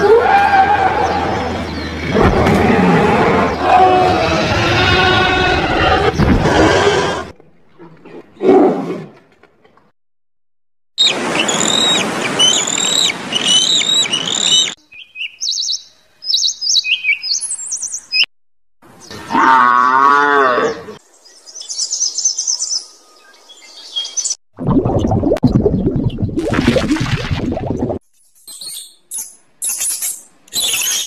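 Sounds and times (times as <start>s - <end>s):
bird chirps: 11.0s - 18.3s, 28.2s - 31.0s
cow mooing: 19.3s - 20.9s.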